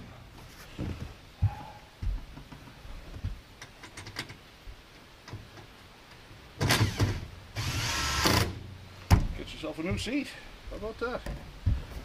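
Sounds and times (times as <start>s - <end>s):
cordless drill driving screws: 6.6s - 8.5s.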